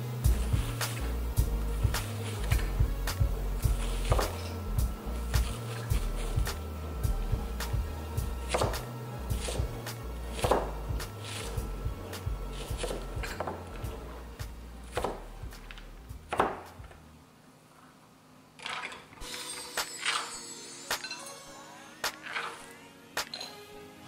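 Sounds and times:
onion scraping on board: 0:03.7 - 0:04.6, 0:08.5 - 0:14.2, 0:14.9 - 0:16.8
knife knocking on cutting board: 0:10.4 - 0:10.7, 0:15.0 - 0:15.2.

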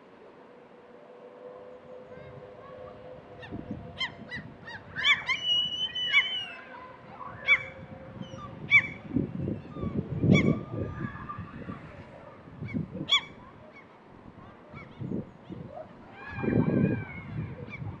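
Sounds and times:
gulls calling: 0:01.6 - 0:18.0.

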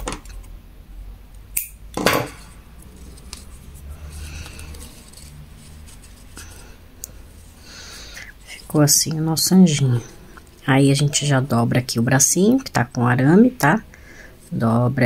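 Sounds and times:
quiet handling: 0:02.0 - 0:11.5.

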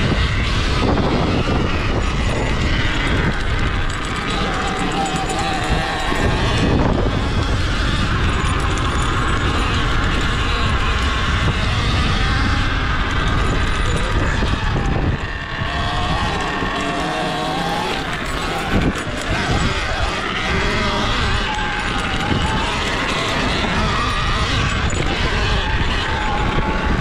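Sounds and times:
electric motor whining: 0:00.0 - 0:27.0
wind and tyre noise: 0:00.0 - 0:27.0.

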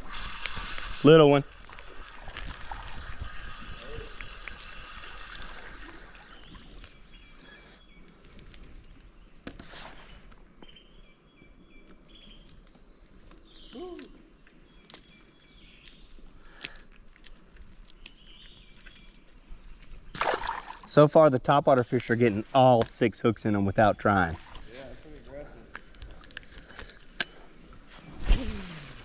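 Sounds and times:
fishing reel whirring: 0:00.0 - 0:07.3
river ambience: 0:00.0 - 0:16.7, 0:18.0 - 0:29.0
faint bird chirps: 0:13.4 - 0:16.6
small splashes: 0:20.1 - 0:21.0.

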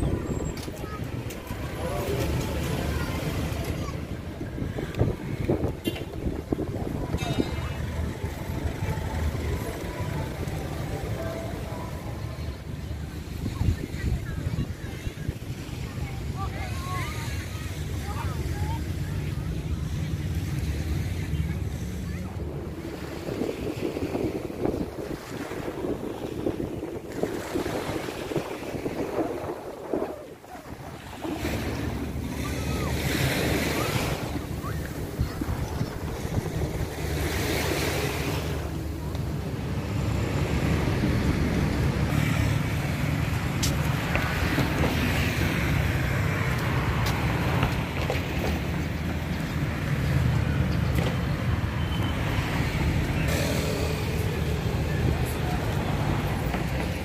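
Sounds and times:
road traffic rumble: 0:00.0 - 0:57.0
wind buffeting microphone: 0:00.0 - 0:57.0
small surf washing: 0:20.0 - 0:50.5.

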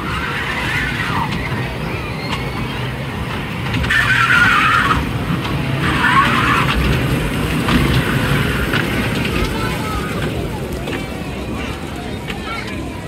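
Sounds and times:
kiddie train rumbling on track: 0:00.0 - 0:13.0
loud shrill noise: 0:03.9 - 0:05.2.

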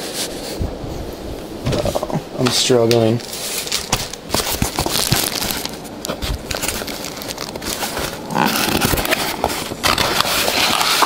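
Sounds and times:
clicks and rustles: 0:01.6 - 0:11.0
cardboard flaps scraping: 0:03.2 - 0:11.0.

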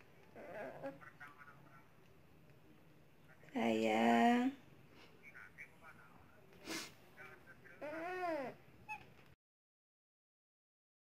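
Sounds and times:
monkey breathy puff: 0:06.6 - 0:07.0.

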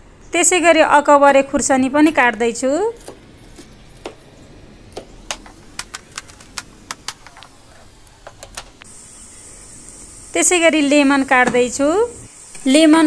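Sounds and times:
faint steady hiss: 0:00.0 - 0:13.0
knife chopping on cutting board: 0:03.0 - 0:04.3, 0:04.9 - 0:07.4.

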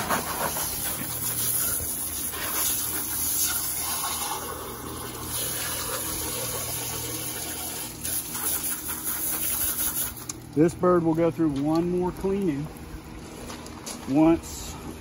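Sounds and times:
hose water spraying: 0:00.0 - 0:10.7.

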